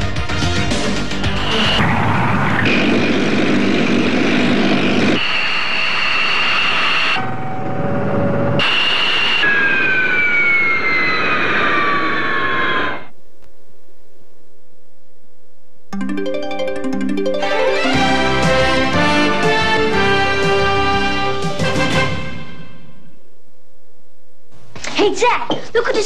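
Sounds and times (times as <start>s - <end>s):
loud jet engine noise: 1.2s - 13.1s
jet engine whine falling in pitch: 1.3s - 13.1s
low electrical hum: 13.1s - 16.0s, 22.8s - 26.0s.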